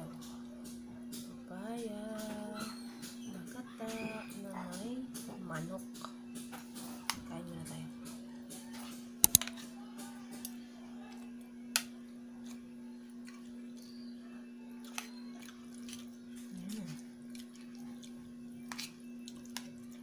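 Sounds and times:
steady low hum: 0:00.0 - 0:20.0
person chewing: 0:14.8 - 0:20.0.

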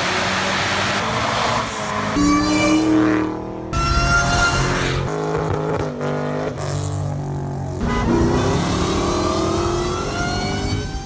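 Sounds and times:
car engine accelerating hard: 0:07.8 - 0:11.0.

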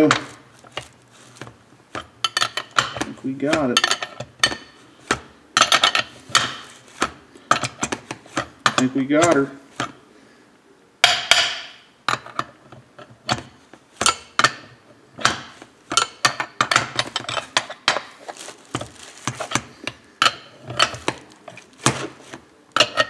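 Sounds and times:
metal wrenches clinking: 0:02.0 - 0:04.8, 0:05.6 - 0:06.7, 0:11.5 - 0:22.1, 0:22.8 - 0:23.0.

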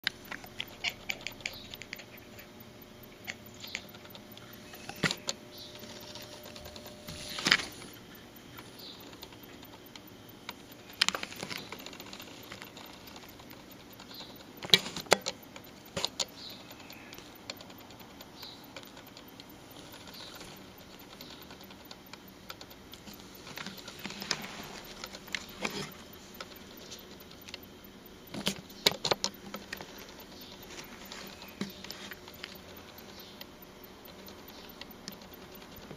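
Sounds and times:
cat making clicking sounds: 0:00.0 - 0:07.1.

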